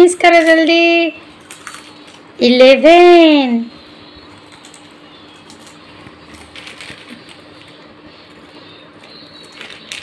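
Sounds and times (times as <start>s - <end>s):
steady low hum: 0.0s - 10.0s
children chewing crunchy snacks: 1.3s - 2.3s, 4.2s - 10.0s
foil packets crinkling: 4.3s - 10.0s.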